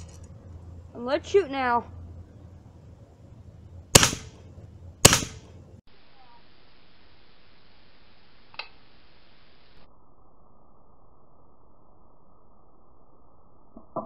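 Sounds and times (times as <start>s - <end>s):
bb gun shots: 3.9s - 4.4s, 5.0s - 5.6s
faint hiss: 5.2s - 13.8s.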